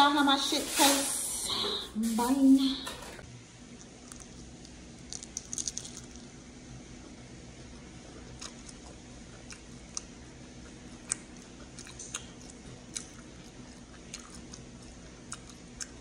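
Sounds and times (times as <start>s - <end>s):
person chewing crunchy lettuce: 8.0s - 16.0s.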